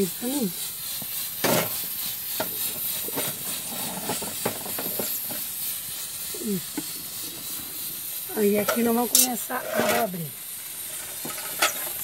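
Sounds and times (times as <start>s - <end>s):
fire hissing: 0.0s - 12.0s
pots boiling: 0.0s - 12.0s
metal hob ring clanking: 8.4s - 10.2s.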